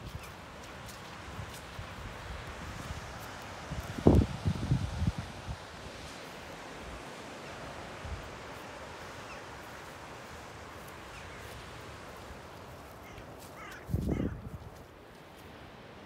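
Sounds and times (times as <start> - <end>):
surf washing against cliffs: 0.0 - 16.0
wind: 0.0 - 16.0
wind buffet on microphone: 1.4 - 6.0, 13.8 - 14.8
seabird calls: 12.9 - 14.4.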